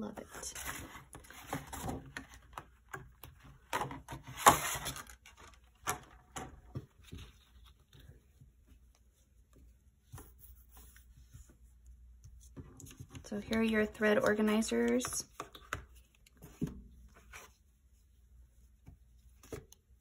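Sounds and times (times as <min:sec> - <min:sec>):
paper and card rustling: 0:00.0 - 0:09.1, 0:12.3 - 0:17.7.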